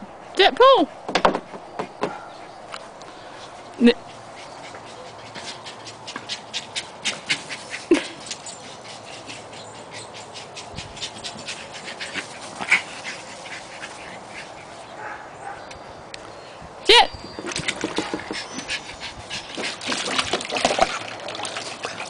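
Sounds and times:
dog panting: 1.5s - 15.6s, 17.8s - 20.2s.

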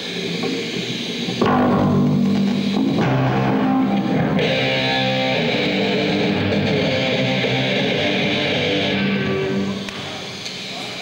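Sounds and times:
distorted electric guitar: 0.0s - 10.4s
bass guitar: 1.3s - 10.0s.

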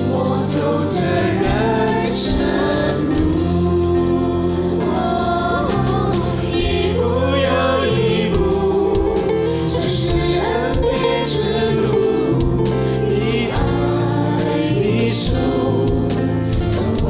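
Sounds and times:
acoustic guitar: 0.0s - 17.0s
keyboard accompaniment: 0.0s - 17.0s
man singing worship song: 6.4s - 17.0s.

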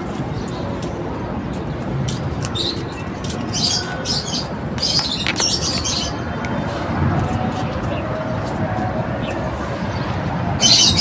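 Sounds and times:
lovebirds chirping: 2.5s - 6.3s.

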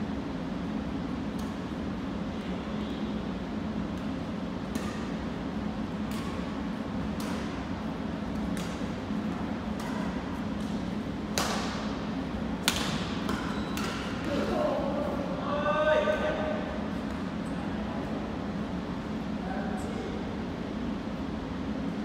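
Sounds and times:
steady low hum: 0.0s - 22.0s
rackets hitting shuttlecock: 3.9s - 7.7s, 8.3s - 12.0s, 12.6s - 14.6s.

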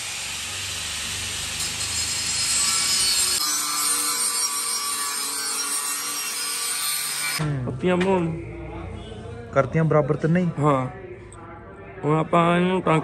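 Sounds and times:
angle grinder grinding steel: 0.0s - 7.4s.

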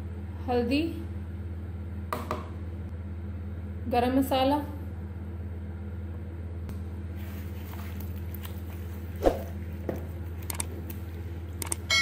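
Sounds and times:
steady low hum: 0.0s - 12.0s
small click: 11.6s - 11.8s.

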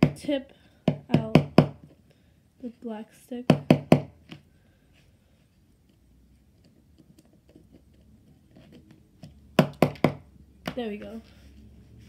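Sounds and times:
sharp plastic knocks: 0.0s - 1.9s, 3.5s - 4.4s, 9.2s - 10.9s.

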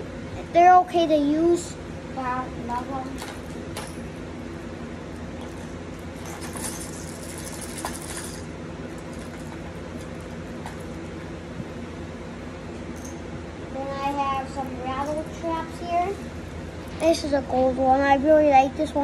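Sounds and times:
steady low hum: 0.0s - 19.0s
fishing tackle rattling: 6.2s - 10.8s.

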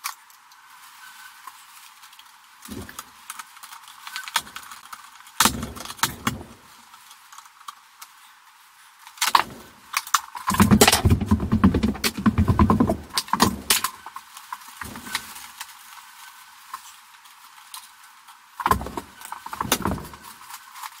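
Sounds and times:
metal clattering and rattling: 5.4s - 6.8s, 10.5s - 14.0s, 14.8s - 15.4s, 18.7s - 20.4s
metallic clicks and knocks: 10.5s - 14.0s, 18.7s - 20.3s.

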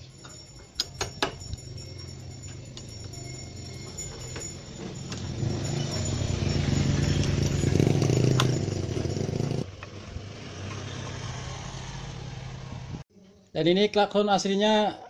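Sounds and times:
vehicle engine running: 1.8s - 10.3s.

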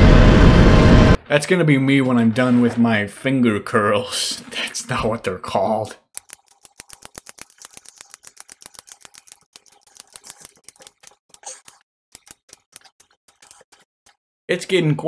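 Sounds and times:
plastic grip trainer clicking: 6.2s - 11.4s.

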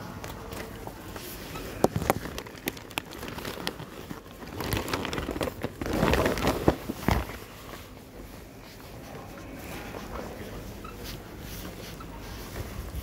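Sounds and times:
fabric rustling on microphone: 0.4s - 13.0s.

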